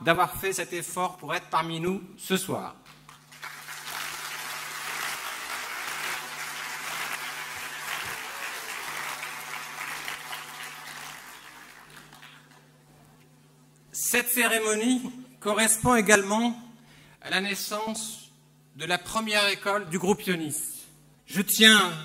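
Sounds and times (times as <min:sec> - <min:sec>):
large audience applauding: 0:03.1 - 0:12.7.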